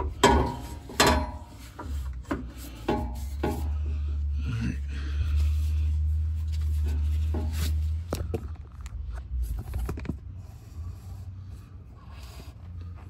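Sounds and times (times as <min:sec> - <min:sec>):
knocks and scrapes on metal: 0:00.0 - 0:04.1, 0:06.6 - 0:08.4.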